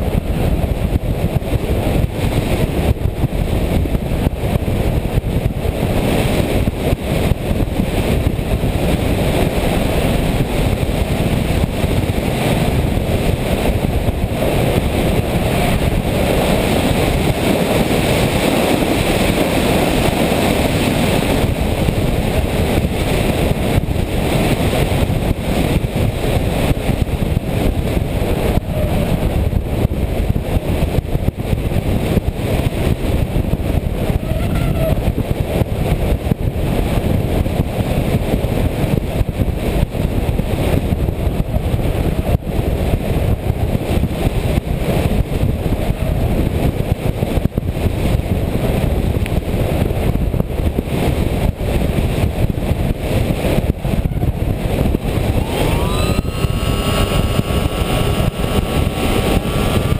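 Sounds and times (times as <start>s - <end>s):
rushing airflow: 0.0s - 59.9s
motor noise: 54.7s - 59.9s.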